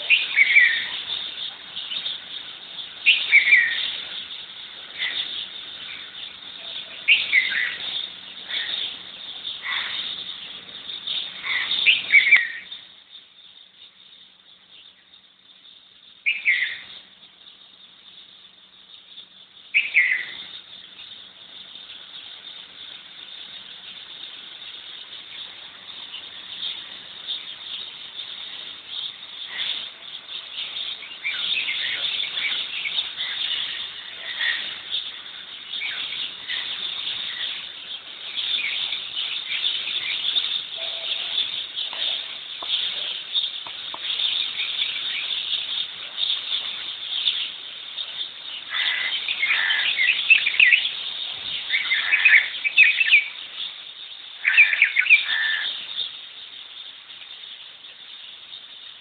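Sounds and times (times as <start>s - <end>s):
loud downward-sliding bird calls: 0.0s - 13.0s, 16.2s - 17.1s, 19.2s - 59.0s
garden birds chirping: 0.0s - 59.0s.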